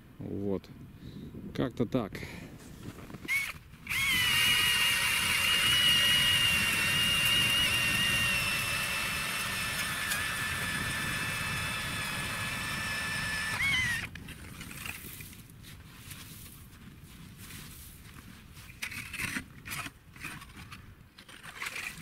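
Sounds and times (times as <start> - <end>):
ice auger motor whine: 3.2 - 15.0.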